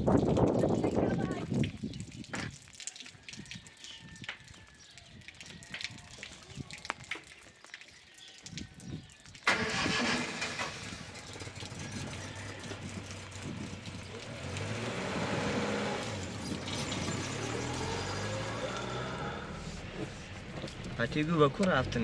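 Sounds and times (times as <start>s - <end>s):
vehicle engine starting and running: 9.4s - 22.0s.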